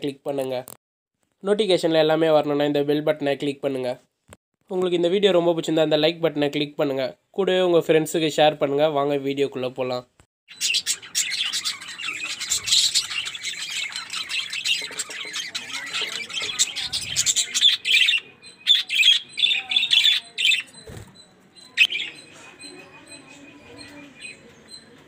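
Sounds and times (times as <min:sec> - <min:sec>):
budgerigars chattering and chirping: 0:10.5 - 0:20.9, 0:21.6 - 0:24.9.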